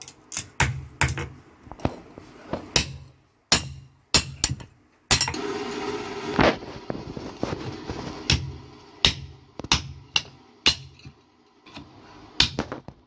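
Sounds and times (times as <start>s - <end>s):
hammer striking iron on anvil: 2.8s - 5.4s, 8.3s - 11.1s, 12.4s - 12.6s.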